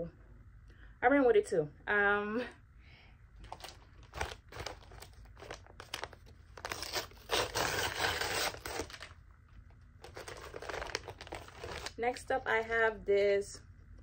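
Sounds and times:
paper mailer crinkling and tearing: 3.4 - 9.2, 10.0 - 12.1.

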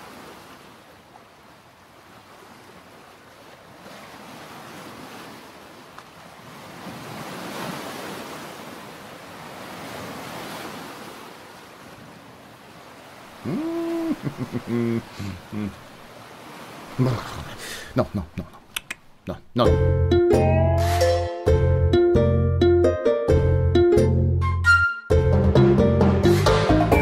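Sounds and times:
sea waves washing onto beach: 0.0 - 18.7.

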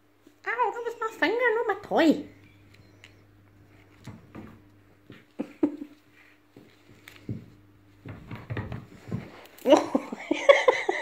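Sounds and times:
soft thumps and taps on tiles: 6.6 - 9.3.

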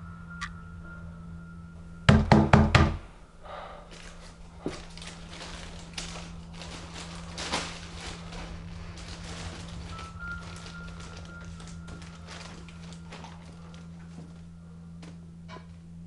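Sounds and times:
loud knocks: 2.1 - 3.1
plastic bag crinkling: 3.9 - 14.4.

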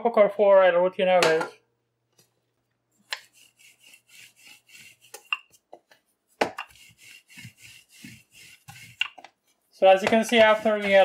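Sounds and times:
rolling pin rubbing on dough: 3.0 - 5.7, 6.6 - 9.2, 9.9 - 11.0.

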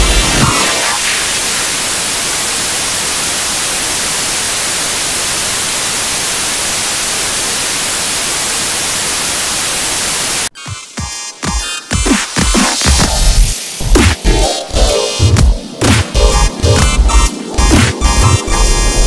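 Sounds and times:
television static hiss: 0.0 - 10.5.

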